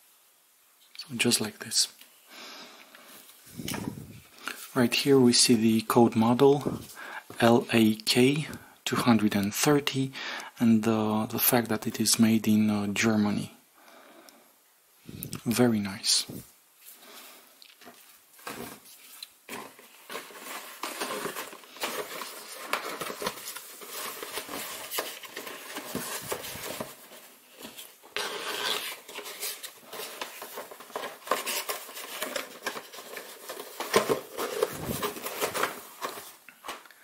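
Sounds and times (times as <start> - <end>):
cardboard rustling and scraping: 17.8 - 36.8.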